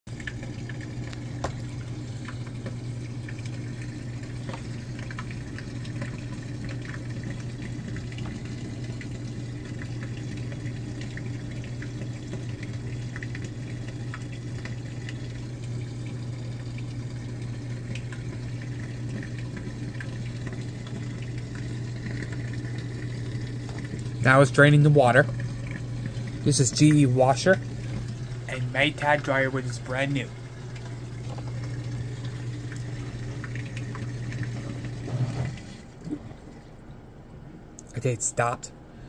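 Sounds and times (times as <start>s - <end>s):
washer drain pump hum: 0.1s - 39.0s
water rushing: 16.2s - 36.8s.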